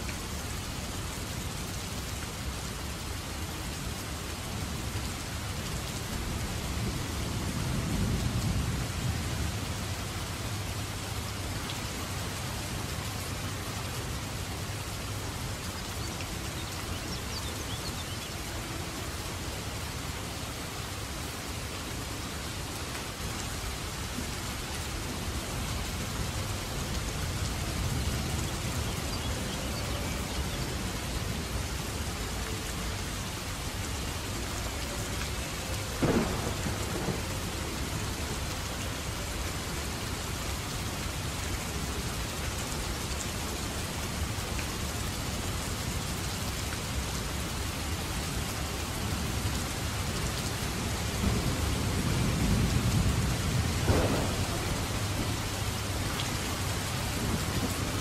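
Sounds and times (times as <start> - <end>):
heavy rain hiss: 0.0 - 58.0
low rolling thunder: 36.0 - 37.8, 51.2 - 58.0.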